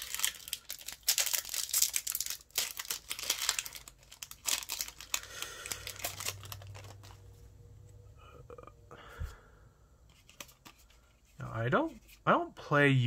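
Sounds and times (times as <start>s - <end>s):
foil wrapper crinkling: 0.0s - 7.3s.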